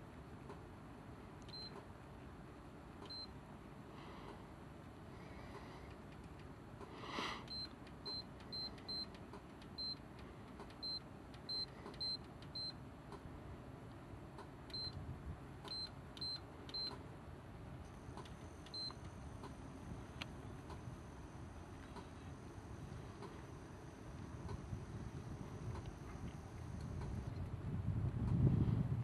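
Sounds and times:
short electronic beeps: 7.5s - 9.1s, 9.8s - 10.0s, 10.8s - 12.8s, 14.7s - 14.9s, 15.7s - 16.9s, 18.5s - 19.0s.

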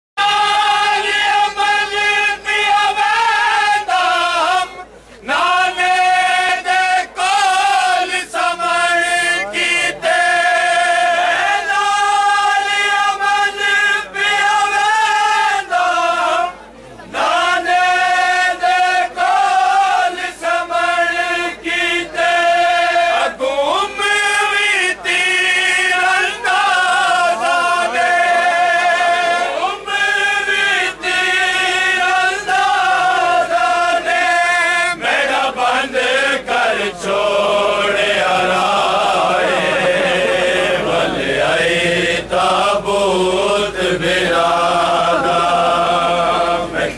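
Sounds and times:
men chanting in unison: 0.2s - 46.9s
lead voice chanting: 20.5s - 46.9s.

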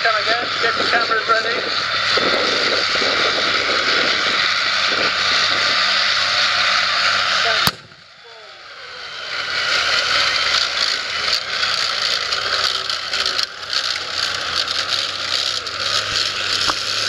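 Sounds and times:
tracked vehicle engine running: 0.0s - 17.0s
tracks rattling: 8.9s - 17.0s.

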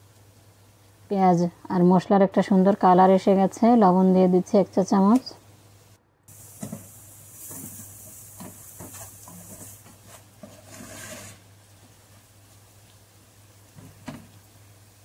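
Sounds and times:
oil sizzling: 0.0s - 3.9s, 5.1s - 15.0s
wooden spoon scraping a pot: 8.4s - 11.5s.

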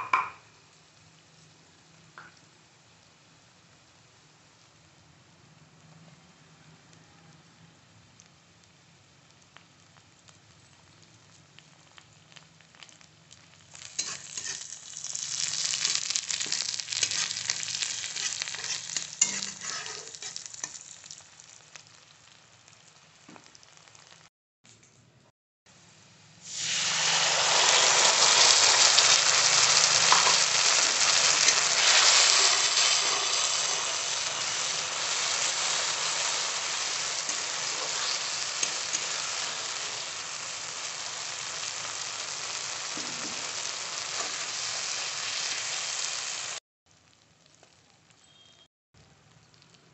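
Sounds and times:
oil sizzling with frying onions: 0.0s - 6.2s, 8.0s - 24.3s, 25.8s - 48.2s
loud sizzle of paste in oil: 0.0s - 24.3s, 25.8s - 49.9s
spatula stirring: 13.9s - 20.9s, 30.0s - 39.5s.

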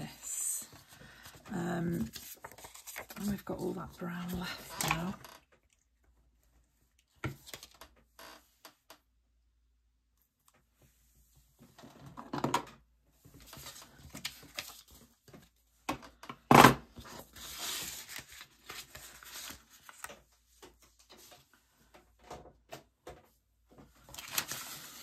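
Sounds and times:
paper and card rustling: 0.1s - 5.2s, 13.3s - 15.5s, 17.0s - 21.4s, 24.0s - 25.0s.

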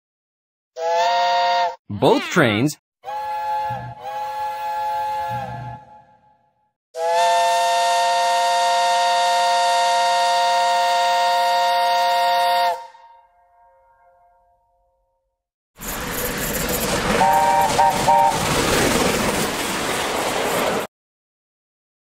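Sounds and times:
steam locomotive chime whistle: 0.8s - 1.8s, 3.0s - 6.3s, 7.0s - 14.1s, 17.2s - 18.4s.

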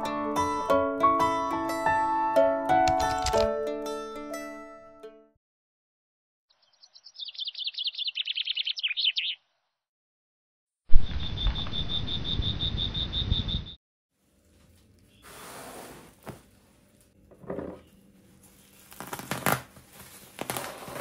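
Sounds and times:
bird twittering: 6.5s - 9.5s, 11.1s - 13.8s
rapid high chirp: 11.2s - 13.8s.

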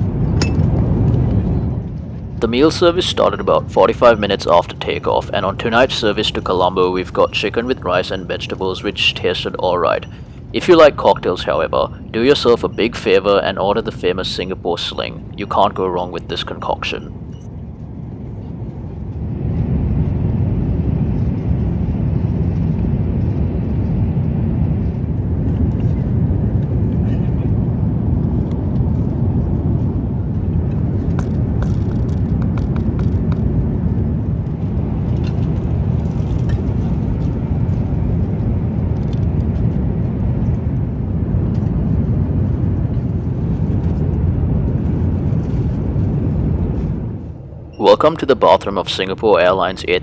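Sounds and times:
airliner cabin engine and airflow noise: 0.0s - 50.0s.

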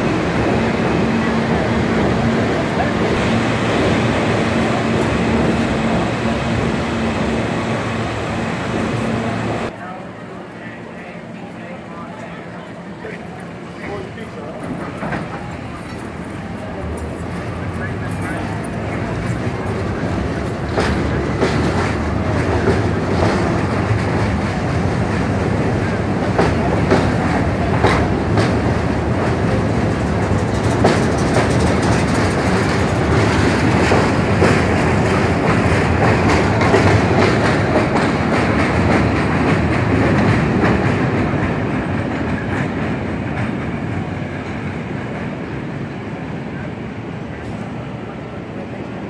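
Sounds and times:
subway train rumbling: 0.0s - 49.0s
wheels clicking over rail joints: 14.4s - 43.8s.

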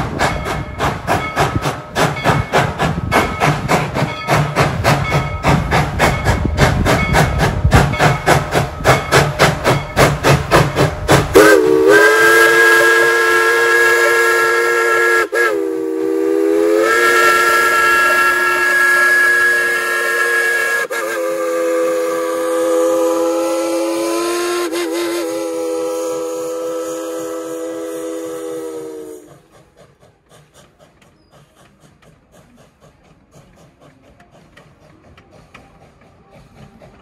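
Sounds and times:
steam locomotive exhaust chuffing: 0.0s - 37.0s
steam whistle blasts: 11.3s - 29.5s.

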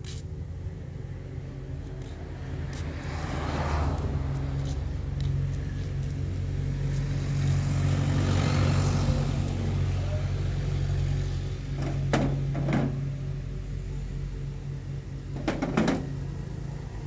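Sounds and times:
truck engine running: 9.0s - 17.0s.

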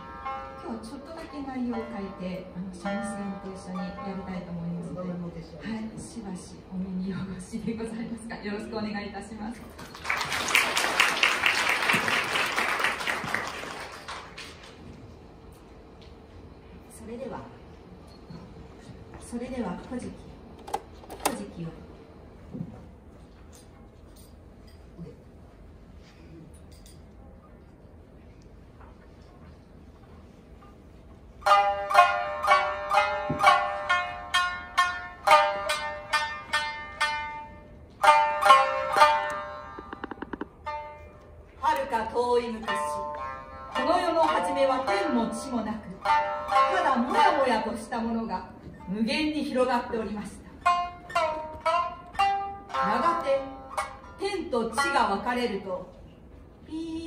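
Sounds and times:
shamisen plucked notes: 0.0s - 5.0s, 31.3s - 49.0s, 50.6s - 55.7s
audience clapping: 9.8s - 14.9s.

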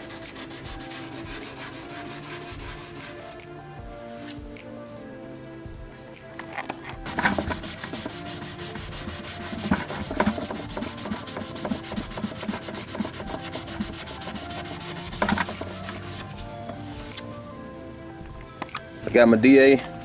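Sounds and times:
abrasive pad rubbing panel: 0.0s - 3.4s, 7.0s - 17.2s.

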